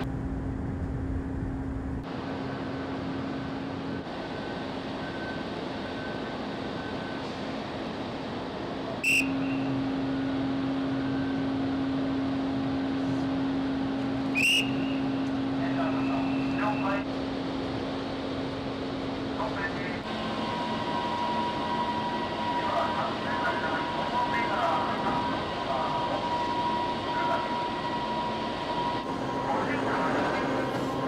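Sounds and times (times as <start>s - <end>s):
ship machinery hum: 0.0s - 31.0s
shrill whistle blasts: 9.0s - 9.7s, 14.3s - 15.2s.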